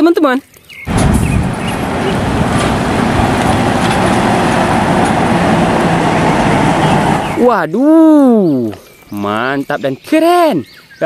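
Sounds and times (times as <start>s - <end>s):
coach bus engine and road noise: 0.9s - 8.7s.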